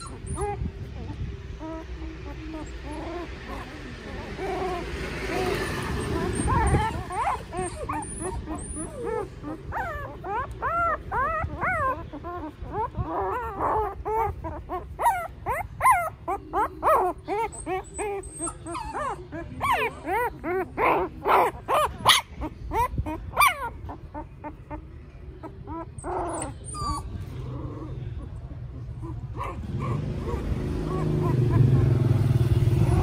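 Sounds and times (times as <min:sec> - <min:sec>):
newborn puppies whimpering and squealing: 0:00.0 - 0:32.1.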